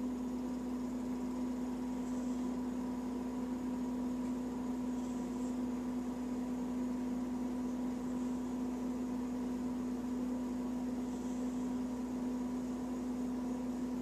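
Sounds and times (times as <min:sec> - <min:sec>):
electrical hum: 0:00.0 - 0:14.0
faint hiss: 0:00.0 - 0:14.0.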